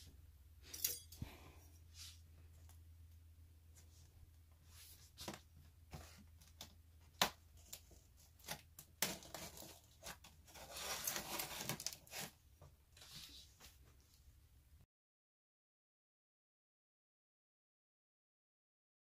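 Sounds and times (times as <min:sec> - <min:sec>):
knife slitting packing tape: 0:08.4 - 0:12.4
tape rasping tear: 0:08.4 - 0:12.4.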